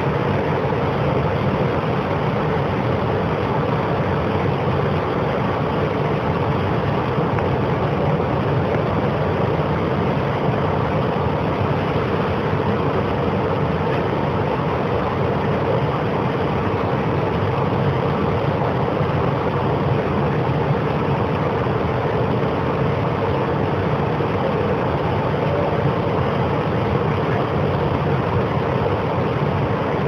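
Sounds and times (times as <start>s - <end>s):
subway train rumbling: 0.0s - 0.6s, 14.6s - 30.0s.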